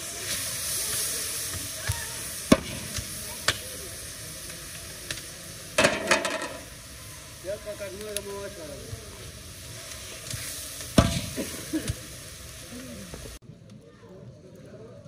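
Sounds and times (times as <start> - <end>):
rice pouring into sizzling broth: 0.0 - 13.4.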